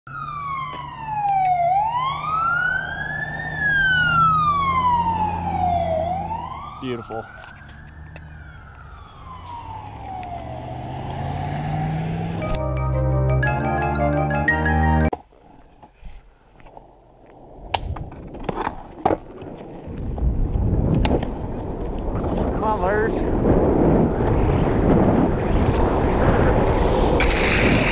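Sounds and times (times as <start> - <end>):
siren wailing: 0.1 - 12.7
skateboard rolling on pavement: 15.1 - 27.9.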